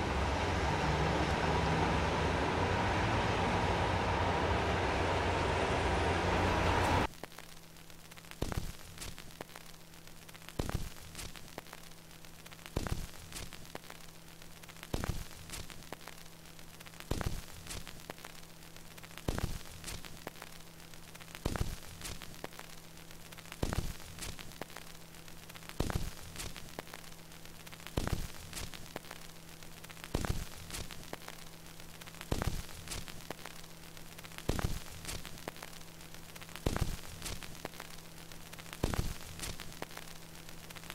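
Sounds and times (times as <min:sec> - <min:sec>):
low hum: 0:00.0 - 0:07.1
vinyl surface hiss: 0:00.0 - 0:40.9.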